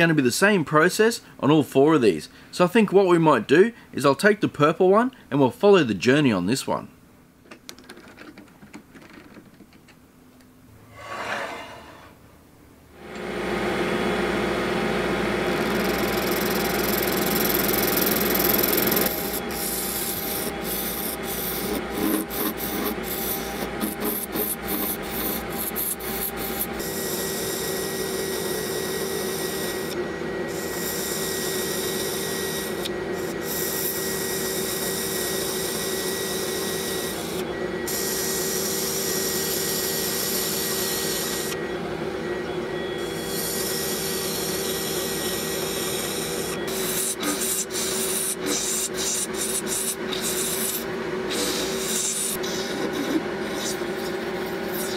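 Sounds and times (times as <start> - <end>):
lathe running: 13.2 - 54.9
turning tool scraping resin: 15.6 - 30.0, 43.3 - 54.9.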